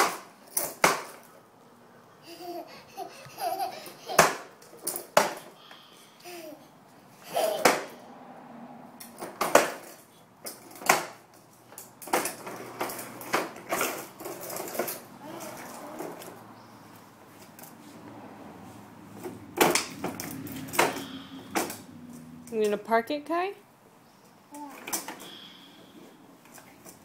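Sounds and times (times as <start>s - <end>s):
plastic toy clattering on concrete: 0.0s - 1.4s, 4.0s - 5.5s, 9.0s - 16.4s, 19.2s - 22.8s, 24.6s - 25.4s
child babbling and laughing: 2.2s - 4.4s, 6.2s - 8.0s, 15.2s - 16.3s, 24.5s - 24.9s.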